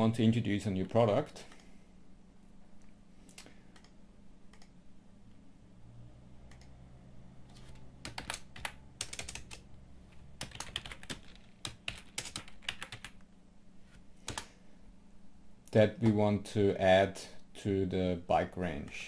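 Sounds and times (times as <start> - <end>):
computer keyboard typing: 7.5 - 9.7, 10.4 - 13.2, 14.2 - 14.5.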